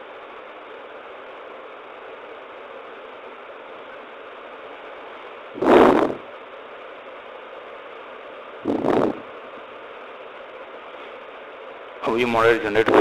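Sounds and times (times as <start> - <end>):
steady background hiss: 0.0 - 13.0
short loud noise bursts: 5.6 - 6.3, 8.6 - 9.4.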